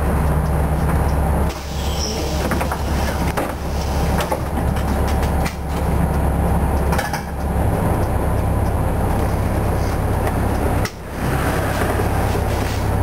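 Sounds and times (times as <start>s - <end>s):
diesel bus engine idling: 0.0s - 13.0s
bus body knocks and rattles: 0.1s - 6.2s, 6.8s - 7.6s.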